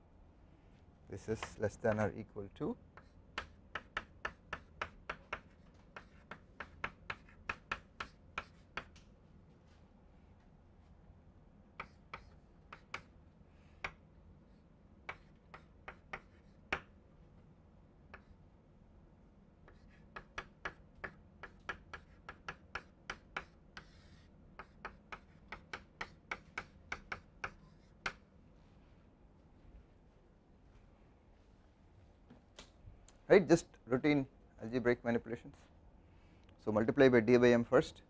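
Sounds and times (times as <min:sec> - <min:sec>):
chalk clicking on blackboard: 0:03.0 - 0:09.0, 0:11.8 - 0:13.1, 0:13.8 - 0:14.0, 0:15.0 - 0:16.9, 0:18.1 - 0:18.3, 0:19.7 - 0:28.2.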